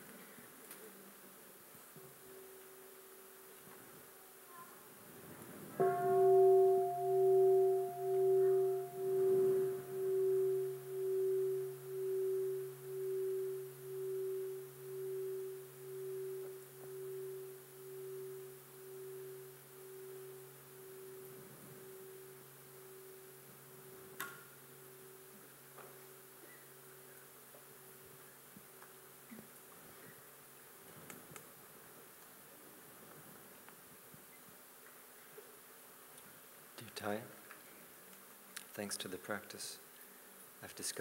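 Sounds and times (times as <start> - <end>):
singing bowl ringing: 2.1 - 3.4, 5.8 - 28.2.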